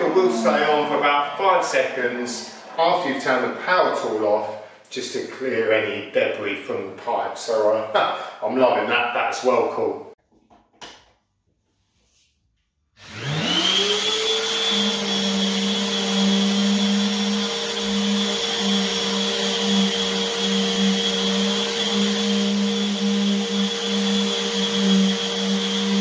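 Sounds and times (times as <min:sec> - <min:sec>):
orbital sander whining: 0:00.0 - 0:03.6, 0:13.0 - 0:26.0
wet and dry vacuum running: 0:13.0 - 0:26.0.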